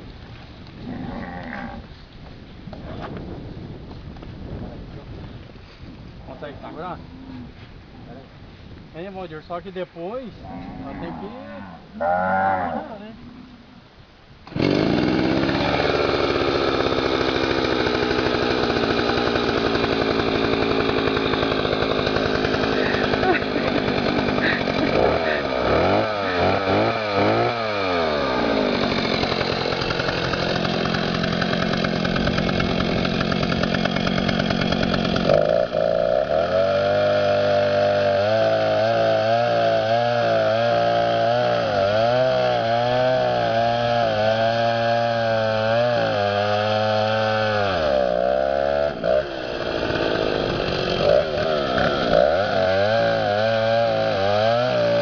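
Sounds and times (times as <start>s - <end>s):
chainsaw cutting wood: 14.4s - 55.0s.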